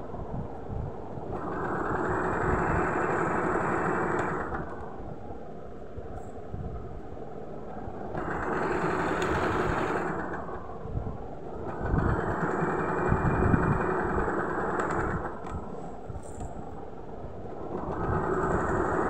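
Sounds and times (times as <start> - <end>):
sewing machine stitching: 8.2 - 10.4.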